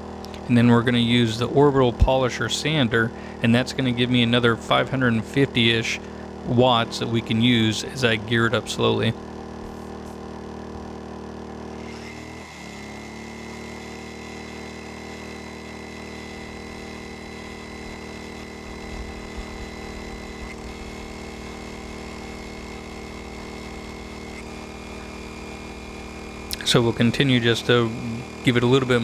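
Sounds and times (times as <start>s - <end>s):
generator engine running: 0.0s - 29.0s
thin high whine: 11.7s - 29.0s.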